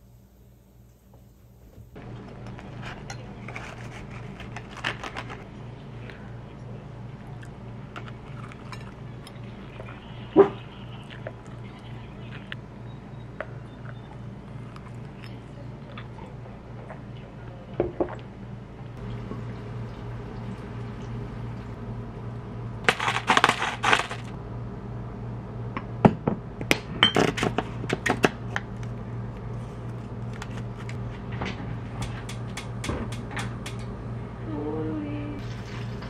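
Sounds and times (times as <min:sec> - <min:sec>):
low hum: 0:00.0 - 0:36.0.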